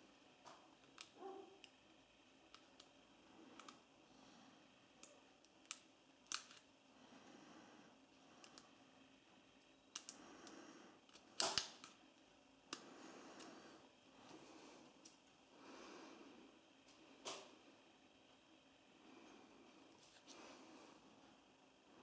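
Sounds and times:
small plastic clicks and scrapes: 2.5s - 3.8s.

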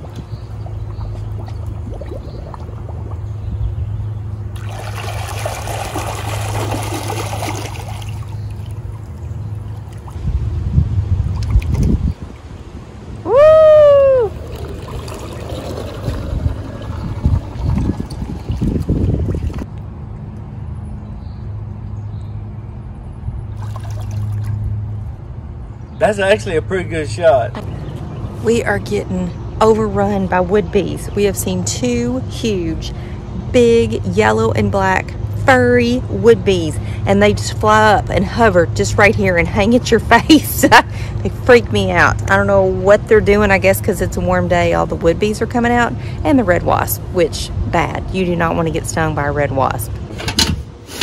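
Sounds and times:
pool cleaner low hum: 0.0s - 10.2s, 13.9s - 20.3s, 33.4s - 51.0s
water splashing and gurgling: 0.0s - 10.5s, 11.1s - 13.2s, 14.1s - 19.7s, 23.5s - 25.0s.

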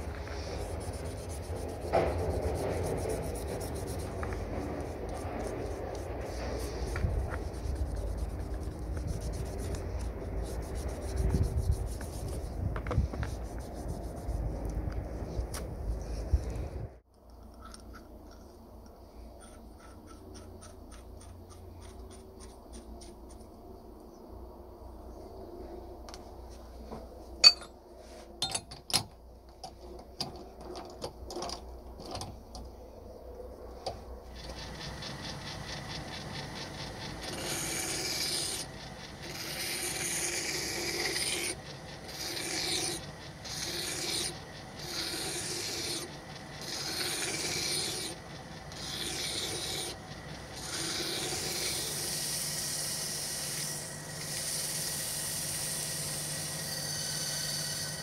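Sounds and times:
metal rasping on abrasive: 0.0s - 14.6s, 34.3s - 52.3s
small motor running: 0.0s - 14.7s, 34.2s - 58.0s.

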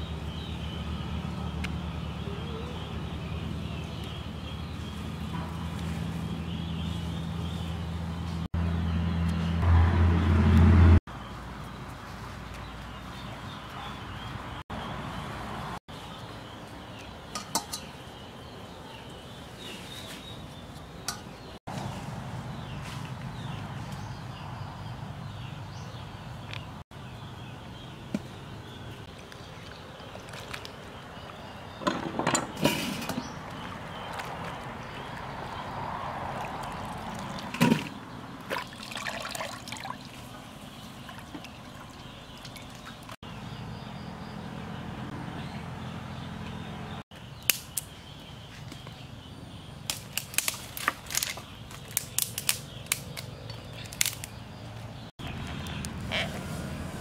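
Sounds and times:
water splashing: 34.0s - 43.2s.

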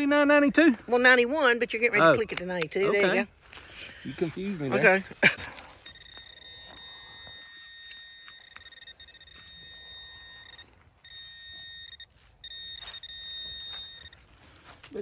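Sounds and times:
metal detector high tone: 5.5s - 15.0s.

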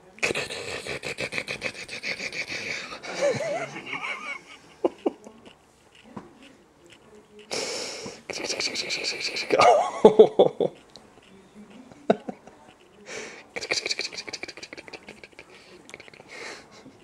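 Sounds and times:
person laughing wheezily: 0.3s - 5.2s, 8.3s - 10.8s, 13.1s - 17.0s.

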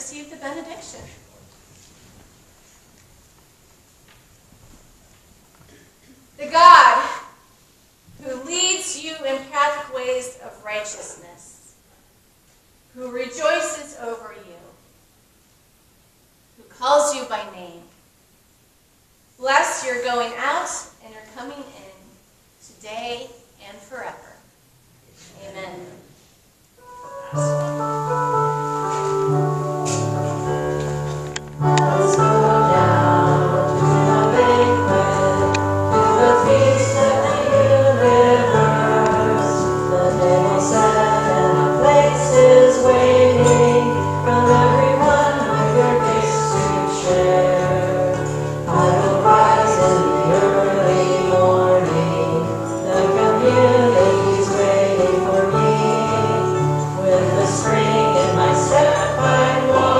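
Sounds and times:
keyboard chords: 26.8s - 59.9s
voices singing a hymn: 26.8s - 59.9s.

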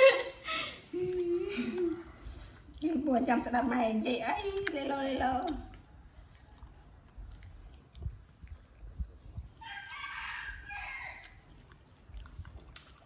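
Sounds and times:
rooster crowing: 9.6s - 11.4s.

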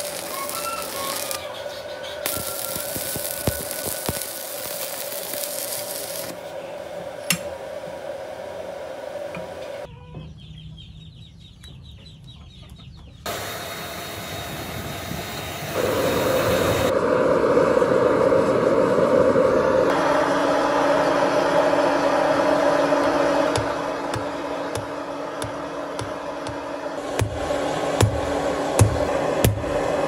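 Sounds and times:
welding arc crackling: 0.0s - 6.5s, 13.3s - 16.9s
forge blower running: 0.0s - 9.9s, 13.3s - 30.0s
chickens clucking: 11.6s - 13.3s.

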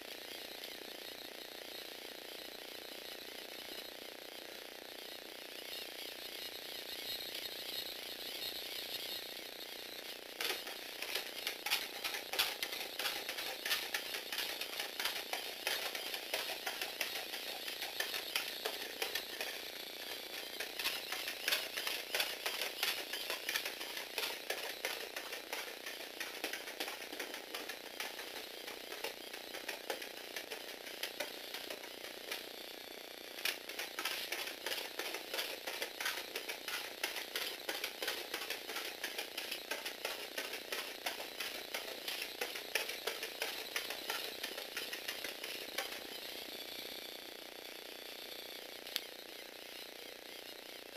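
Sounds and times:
toy motor gears clicking and clattering: 0.0s - 50.9s
robot feet tapping on wooden floor: 10.4s - 32.5s, 33.4s - 46.1s.

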